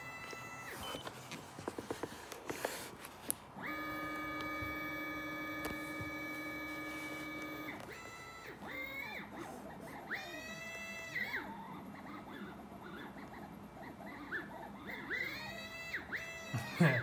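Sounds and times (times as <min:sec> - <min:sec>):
clicks: 0:00.2 - 0:08.0
stepper motors whining: 0:03.6 - 0:11.6.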